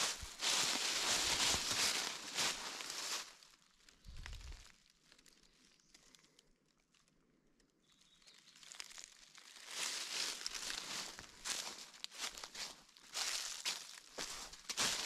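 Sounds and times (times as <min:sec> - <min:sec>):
footsteps crunching dry leaves: 0:00.0 - 0:04.8, 0:08.3 - 0:15.0.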